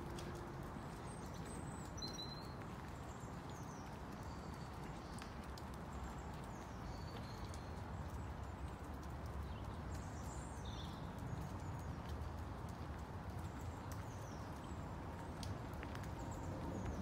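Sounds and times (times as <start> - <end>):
low outdoor rumble: 15.2 - 17.0.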